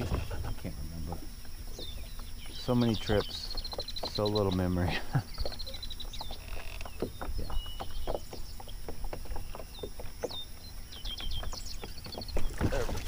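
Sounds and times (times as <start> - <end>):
waves slapping against boat hull: 11.2 - 13.0.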